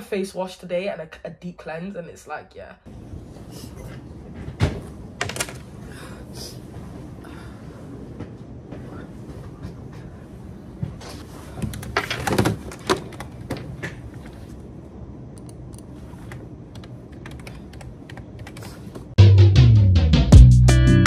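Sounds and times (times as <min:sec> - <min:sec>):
computer keyboard typing: 0:16.7 - 0:18.8.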